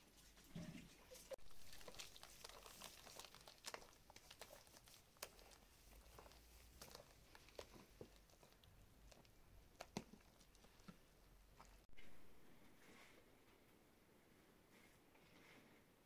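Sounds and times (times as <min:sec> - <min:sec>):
hand mixing dough in bowl: 0:00.0 - 0:12.2.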